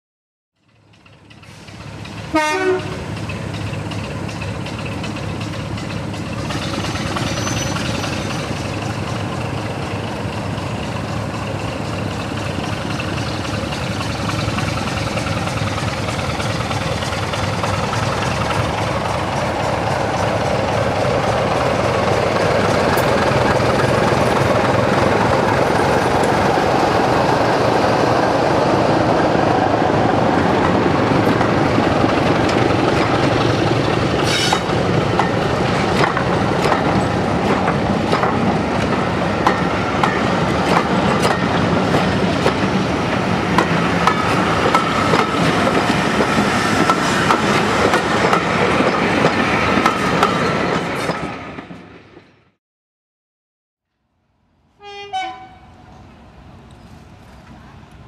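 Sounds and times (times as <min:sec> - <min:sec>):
diesel locomotive engine: 0:00.6 - 0:52.6, 0:54.3 - 0:58.0
locomotive horn blast: 0:02.3 - 0:03.0, 0:54.8 - 0:55.7.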